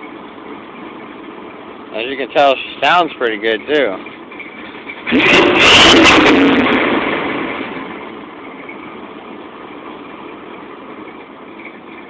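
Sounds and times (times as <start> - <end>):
car engine revving to idle: 4.1 - 12.0.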